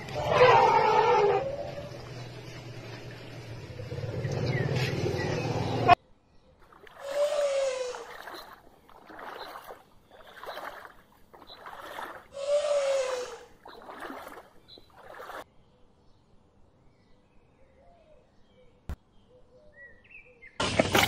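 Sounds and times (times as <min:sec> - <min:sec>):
water splashing: 0:06.6 - 0:15.5.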